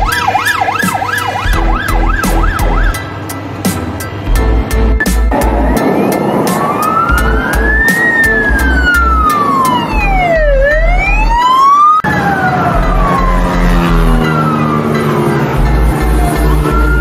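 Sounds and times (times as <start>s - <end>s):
siren wailing: 0.0s - 3.0s, 5.3s - 17.0s
low regular beat: 0.0s - 17.0s.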